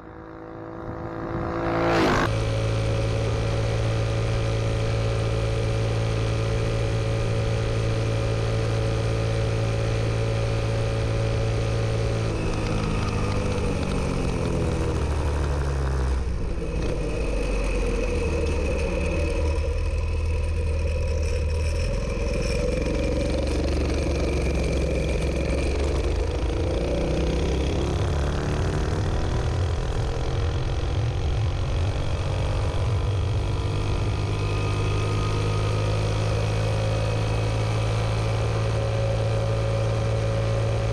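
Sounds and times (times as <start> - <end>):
mini bike engine revving: 0.0 - 2.4, 11.0 - 40.9.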